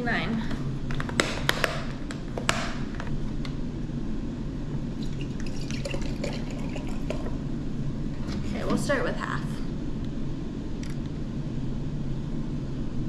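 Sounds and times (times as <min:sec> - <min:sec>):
steady low hum: 0:00.0 - 0:13.0
liquid pouring into glass jar: 0:05.0 - 0:07.4.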